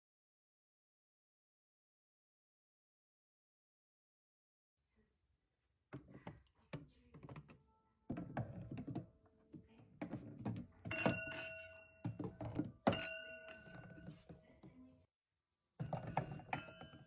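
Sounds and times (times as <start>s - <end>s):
glasses knocking on wooden rack: 6.0s - 14.7s, 15.8s - 17.0s
glass ringing: 10.8s - 14.4s, 15.8s - 17.0s.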